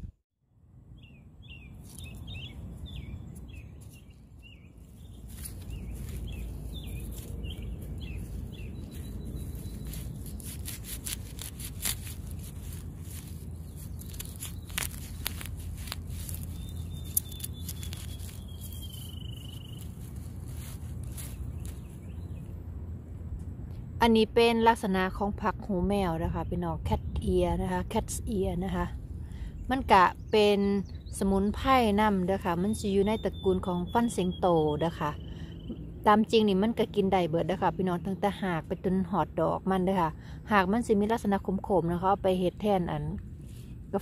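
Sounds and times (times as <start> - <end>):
steady low rumble: 0.0 - 33.4
birds chirping: 1.0 - 10.8, 12.6 - 22.6.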